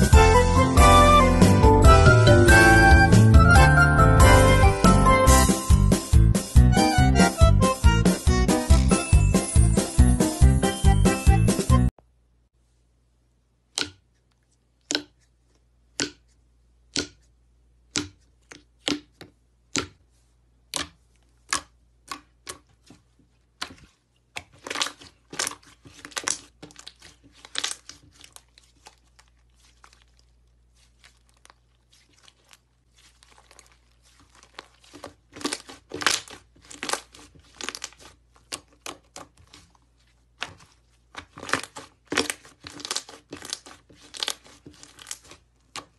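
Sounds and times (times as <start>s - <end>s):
slime crackling and crinkling: 21.0s - 45.9s
slime popping: 24.4s - 39.6s, 40.3s - 45.9s.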